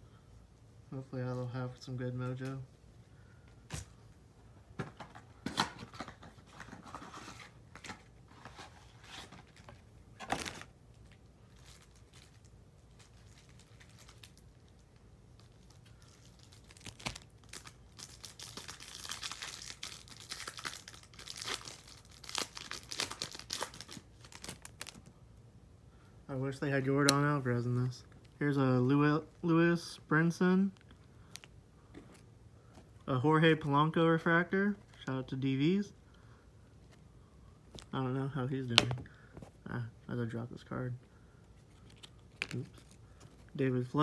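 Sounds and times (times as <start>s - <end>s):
wrapper crinkling: 9.0s - 25.1s, 41.6s - 43.9s
wrapper tearing: 9.1s - 14.8s, 15.4s - 25.1s, 41.6s - 43.4s.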